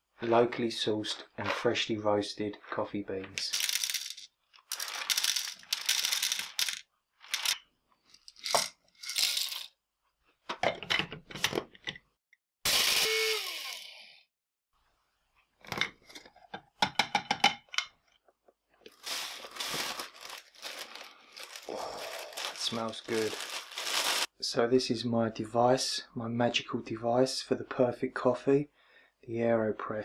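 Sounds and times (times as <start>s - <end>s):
beans and containers rattling: 3.3s - 9.7s, 18.9s - 24.3s
electric coffee grinder: 12.7s - 14.1s
plastic crinkling: 18.9s - 24.3s.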